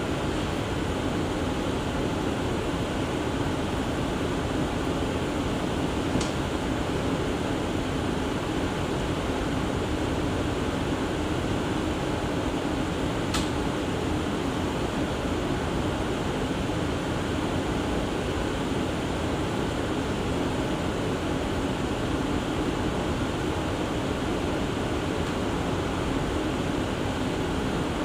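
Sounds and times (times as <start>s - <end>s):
sharp click: 13.3s - 13.6s.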